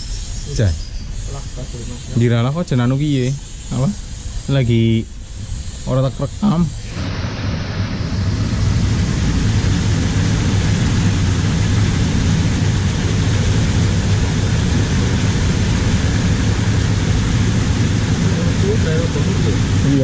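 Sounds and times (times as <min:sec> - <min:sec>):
water rushing from a culvert: 0:06.8 - 0:20.0.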